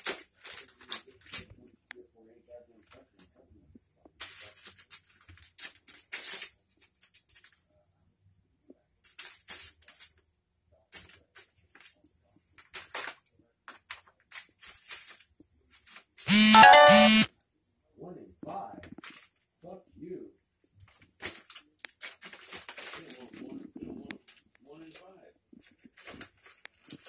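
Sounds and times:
loud electric buzzer: 16.3 - 17.3.

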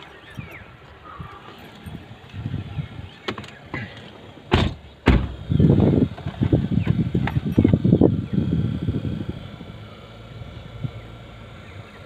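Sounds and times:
low rumbling and bumping: 1.5 - 9.2
sharp knocks inside car: 4.5 - 5.4.

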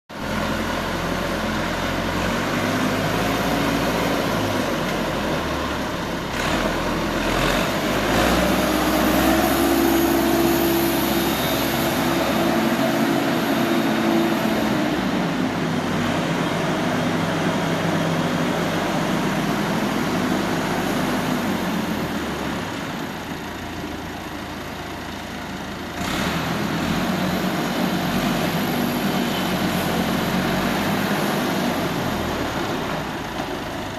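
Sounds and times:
tractor engine revving: 0.2 - 23.8, 25.9 - 33.3.

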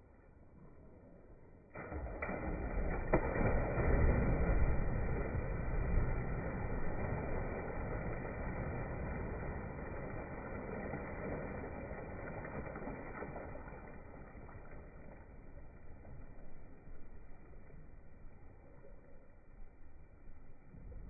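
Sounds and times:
pond water churning and sloshing: 0.1 - 21.0.

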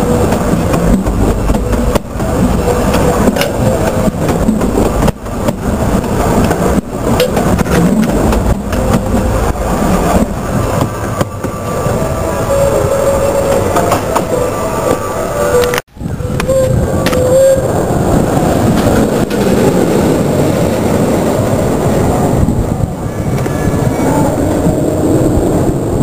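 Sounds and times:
train wheels clattering over rails: 0.0 - 11.7, 18.0 - 22.1
train rumbling: 0.0 - 26.0.

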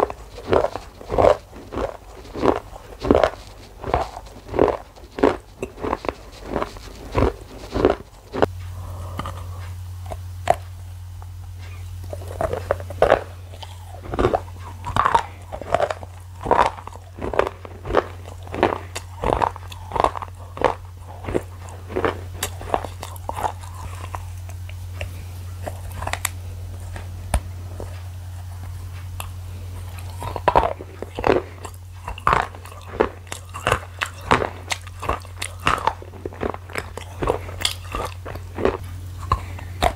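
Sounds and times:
low hum: 0.0 - 39.9
person chewing food: 0.0 - 39.9.

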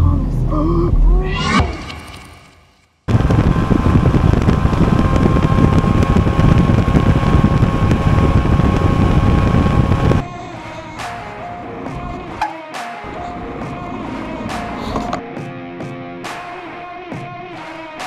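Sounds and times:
boat engine and hull noise: 3.1 - 10.2
faint steady whine: 3.1 - 10.2
wind buffeting microphone: 3.1 - 10.2.

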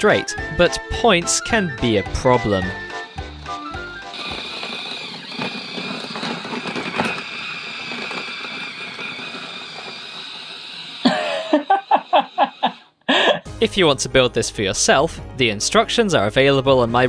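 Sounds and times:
plastic wheels clicking on track: 1.3 - 12.8
electric motor whining: 1.7 - 12.8.

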